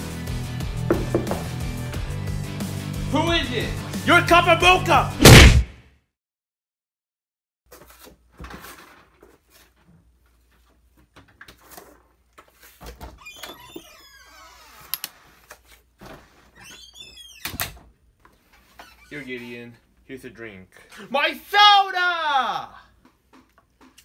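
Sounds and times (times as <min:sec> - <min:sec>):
kitchen handling knocks and rustles: 0:00.9 - 0:01.6.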